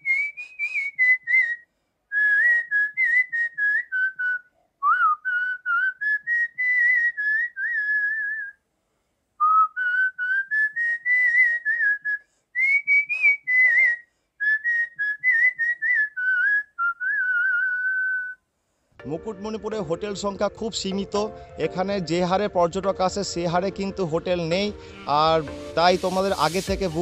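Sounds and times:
person whistling a tune: 0.0s - 8.6s, 9.4s - 18.4s.

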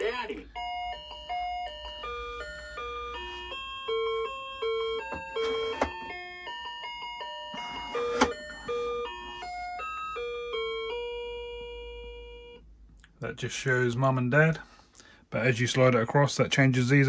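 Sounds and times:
electronic toy beeping tune: 0.1s - 12.6s.

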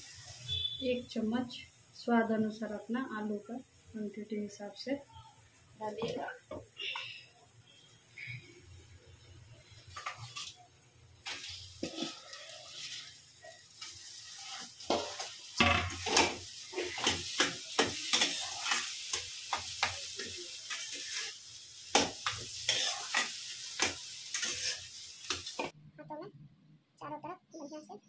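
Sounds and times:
hot oil sizzling: 0.0s - 25.8s
metal spatula scraping a pan: 9.6s - 10.6s, 11.2s - 25.7s.

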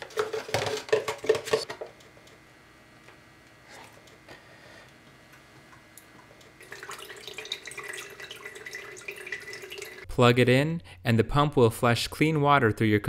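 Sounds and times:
water pouring and splashing: 6.6s - 10.1s.

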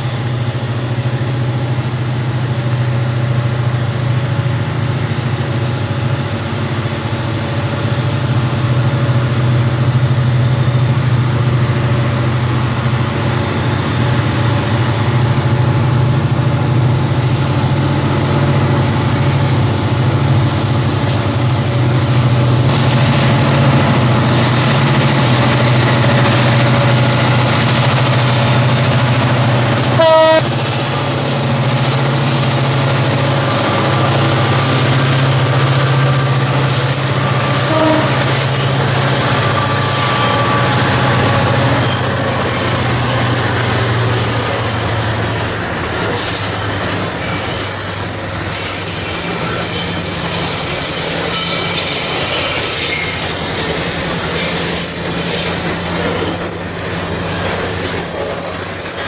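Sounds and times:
diesel locomotive engine drone: 0.0s - 59.0s
rumble of train wheels: 0.0s - 59.0s
train horn toot: 29.8s - 30.6s, 36.5s - 42.2s.

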